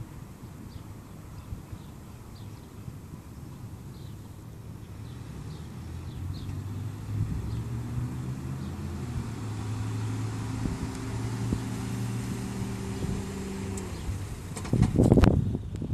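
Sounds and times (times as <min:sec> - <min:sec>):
car engine running at low speed: 0:04.0 - 0:15.9.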